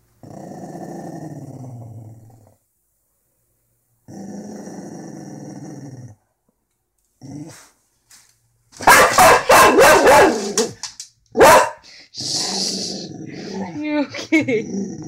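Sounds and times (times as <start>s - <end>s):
dog growling: 0.2s - 2.6s, 4.1s - 6.2s, 7.2s - 7.7s, 12.2s - 15.0s
dog barking: 8.8s - 10.7s, 11.4s - 11.8s.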